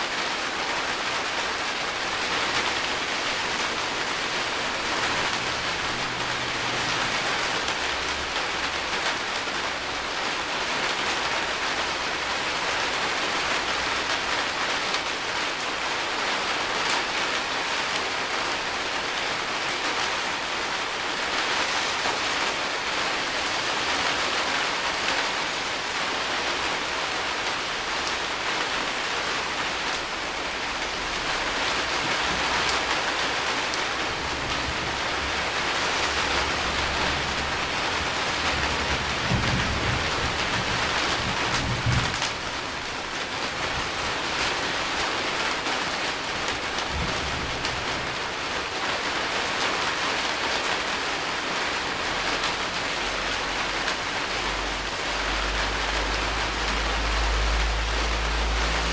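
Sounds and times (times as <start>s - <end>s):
steady rain: 0.0s - 58.9s
low rumble of thunder: 34.2s - 42.6s.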